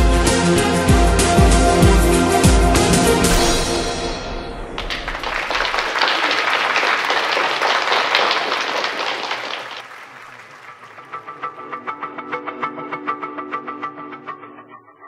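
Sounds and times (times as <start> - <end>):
audience applauding: 4.8 - 11.9
show music: 4.8 - 14.9.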